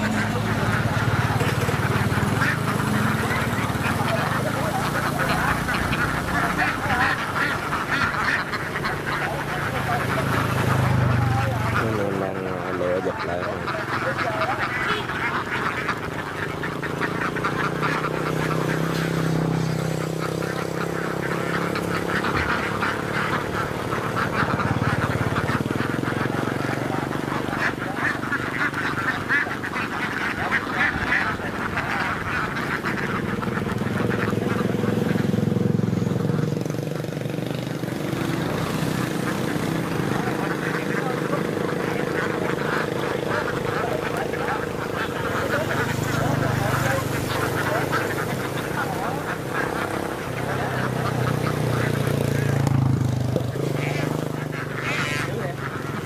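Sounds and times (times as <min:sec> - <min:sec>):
ducks quacking: 0:00.0 - 0:56.0
small engine running: 0:00.0 - 0:56.0.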